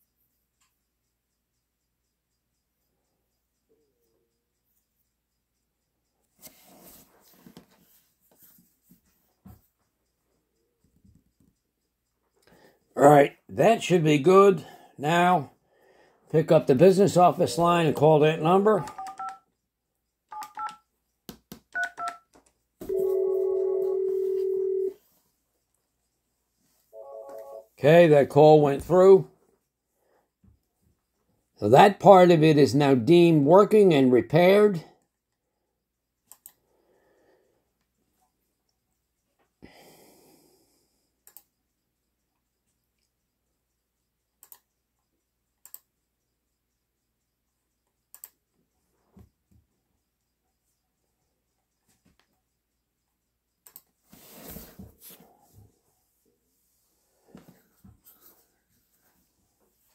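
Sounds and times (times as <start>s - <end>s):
touch-tone telephone digits: 18.6s - 19.5s, 20.3s - 20.9s, 21.8s - 22.3s, 22.9s - 24.9s
telephone ringback tone: 18.8s - 19.4s, 22.8s - 25.0s, 27.0s - 27.7s.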